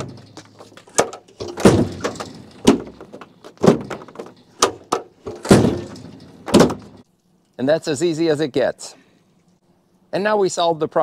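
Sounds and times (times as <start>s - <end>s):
tailgate clunking shut: 0.0s - 7.0s.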